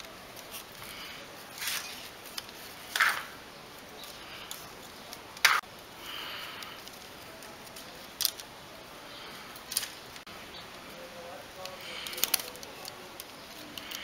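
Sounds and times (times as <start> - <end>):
cord rustling through slats: 0.0 - 5.7.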